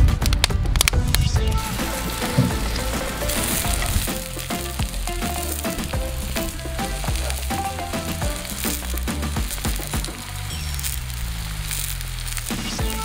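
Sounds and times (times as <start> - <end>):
onions sizzling in a skillet: 1.5 - 13.0.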